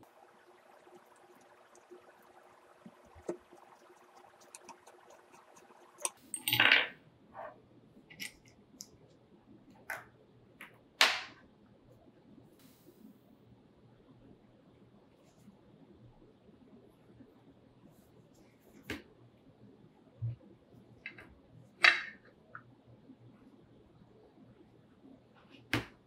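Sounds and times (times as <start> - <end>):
small metal parts clicking and knocking: 6.0 - 6.8, 8.1 - 8.5
parts clattering on tabletop: 6.0 - 8.4.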